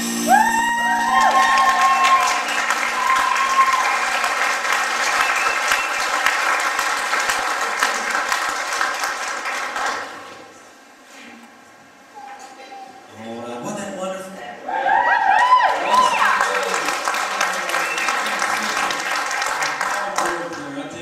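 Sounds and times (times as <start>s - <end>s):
congregation clapping: 0.8s - 10.5s, 15.4s - 21.0s.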